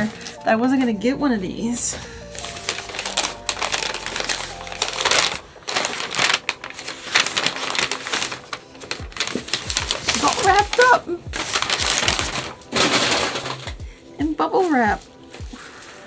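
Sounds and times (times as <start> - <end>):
bubble wrap crinkling: 0.0 - 16.0.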